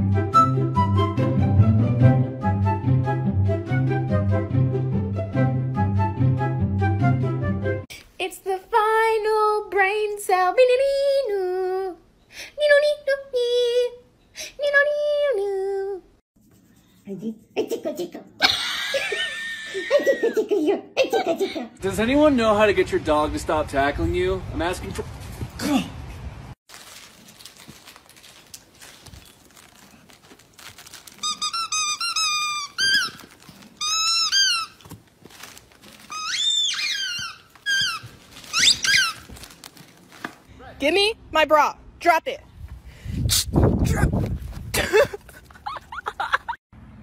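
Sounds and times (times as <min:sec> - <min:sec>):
dog toy squeaking: 0:31.2 - 0:35.0, 0:36.0 - 0:39.4.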